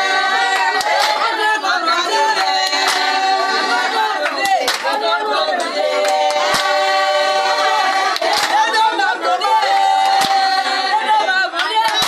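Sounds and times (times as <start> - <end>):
women singing long held notes: 0.0 - 12.0
hand claps: 0.5 - 1.4, 2.4 - 3.2, 4.2 - 5.0, 5.6 - 7.0, 8.0 - 8.9, 9.7 - 10.7, 11.6 - 12.0.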